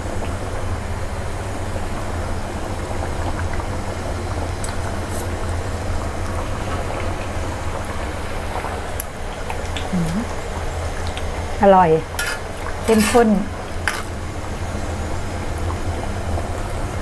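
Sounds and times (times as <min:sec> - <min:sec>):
curry boiling in a pot: 0:00.0 - 0:17.0
low burner hum: 0:00.0 - 0:17.0.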